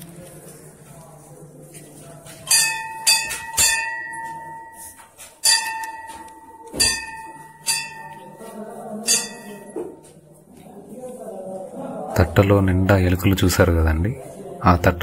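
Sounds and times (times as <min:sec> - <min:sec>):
murmur of voices: 0:00.0 - 0:15.0
temple bell ringing: 0:02.5 - 0:10.0.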